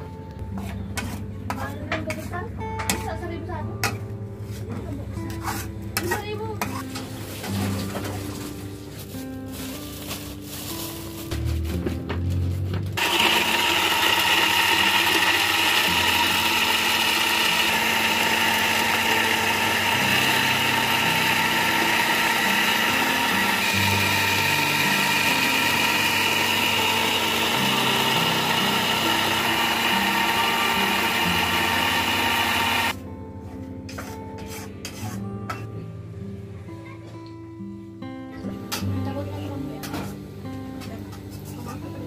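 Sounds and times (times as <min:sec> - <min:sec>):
background guitar music: 0:00.0 - 0:13.0, 0:15.4 - 0:42.0
electric blender motor whirring: 0:13.0 - 0:33.0.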